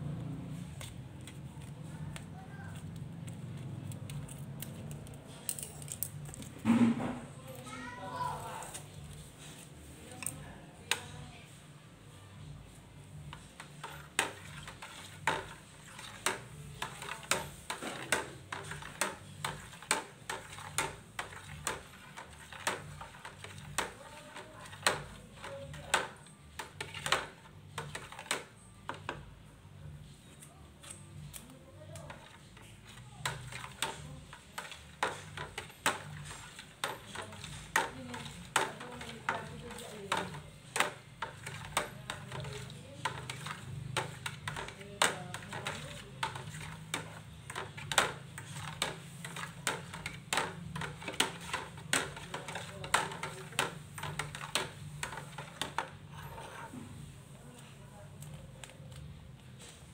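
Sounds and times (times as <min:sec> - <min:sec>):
utensil stirring water in bucket: 0:13.3 - 0:29.2, 0:31.9 - 0:56.8.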